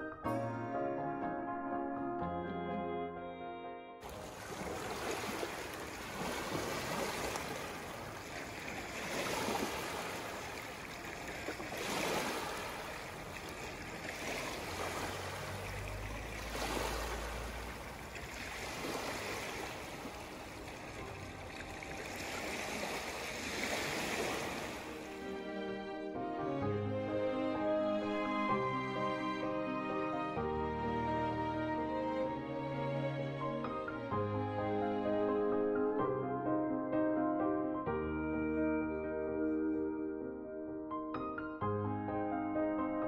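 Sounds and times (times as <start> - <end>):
water rushing: 4.0 - 35.5.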